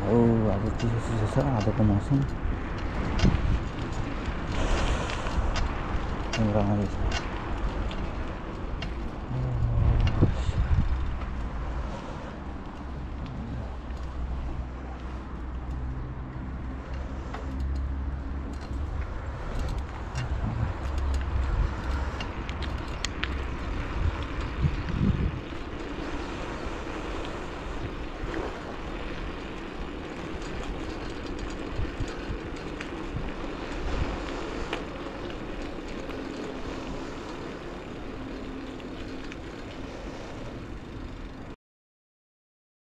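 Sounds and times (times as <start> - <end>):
sharp clicks and rattles: 0.0 - 11.6, 15.6 - 26.0, 28.3 - 37.4
heavy low rumble: 0.0 - 41.5
wind buffeting microphone: 0.0 - 41.5
tyres rolling on asphalt: 0.0 - 41.6.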